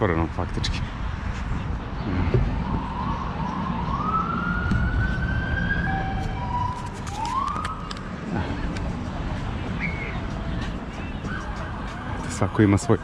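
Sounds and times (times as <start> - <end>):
steady low rumble: 0.0 - 12.2
siren wailing: 2.5 - 8.0.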